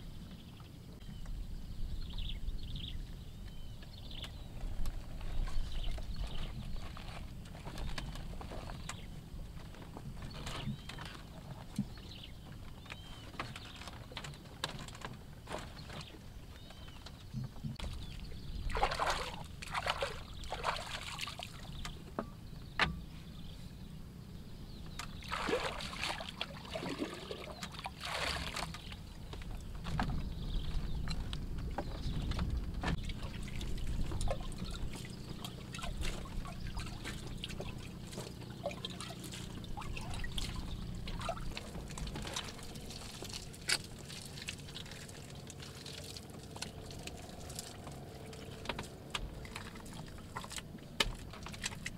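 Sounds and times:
water sloshing into clay pot: 0:17.9 - 0:21.8, 0:25.1 - 0:29.2, 0:32.9 - 0:51.9.

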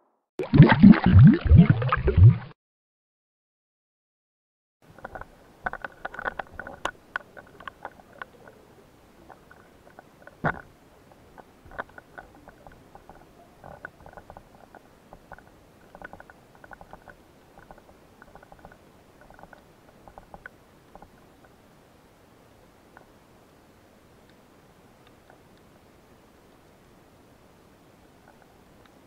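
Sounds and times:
underwater clicking and crackling: 0:04.9 - 0:08.6, 0:09.2 - 0:21.6, 0:28.2 - 0:29.0.

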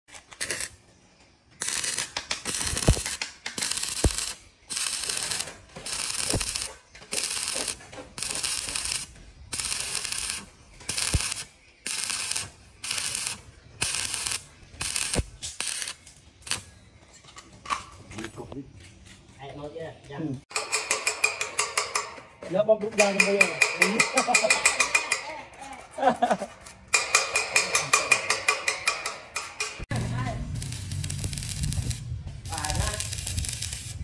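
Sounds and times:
welding arc crackling: 0:00.1 - 0:00.8, 0:01.6 - 0:16.8, 0:27.0 - 0:34.0.

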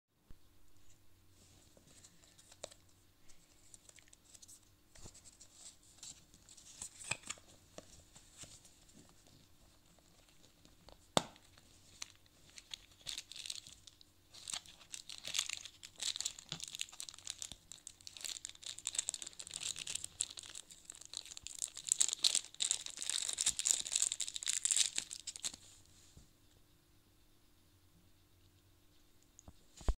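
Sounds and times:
plastic bag crinkling: 0:11.5 - 0:25.6.

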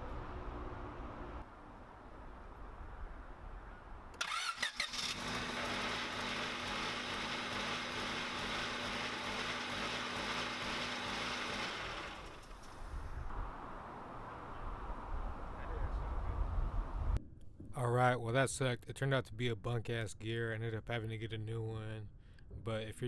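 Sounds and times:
starter motor whining: 0:04.2 - 0:12.6
car engine running: 0:05.1 - 0:12.6.

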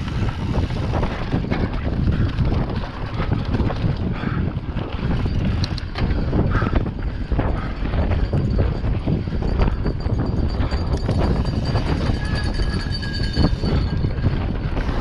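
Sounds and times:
bike knocks and rattles: 0:00.0 - 0:15.0
tyres rumbling on dirt trail: 0:00.0 - 0:15.0
wind buffeting microphone: 0:00.0 - 0:15.0.

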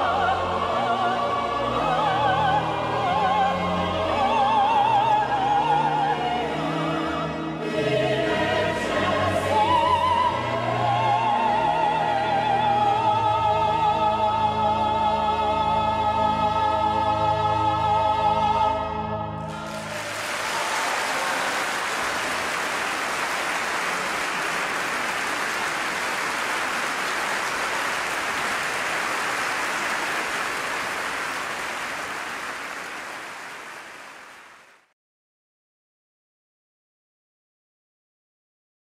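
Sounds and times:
soprano with choir and pipe organ: 0:00.0 - 0:22.5
audience applause: 0:19.5 - 0:34.9.

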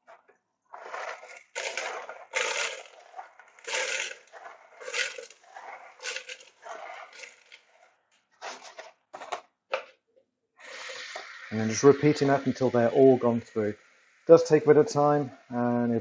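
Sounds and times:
metal pieces rustling in colander: 0:04.8 - 0:05.4, 0:06.0 - 0:06.5.

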